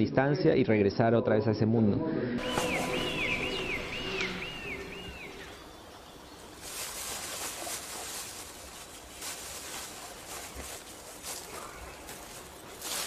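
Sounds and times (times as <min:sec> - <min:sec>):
leaves rustling: 0:02.4 - 0:13.0
loud rustles and crackles: 0:06.4 - 0:13.0.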